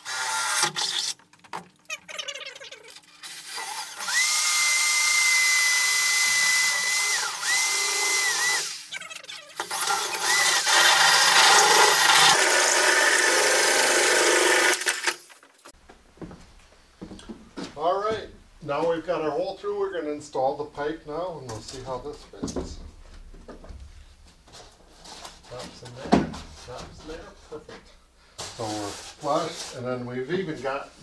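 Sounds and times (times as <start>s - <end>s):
electric drill cutting steel: 0.0s - 1.2s, 3.2s - 15.3s.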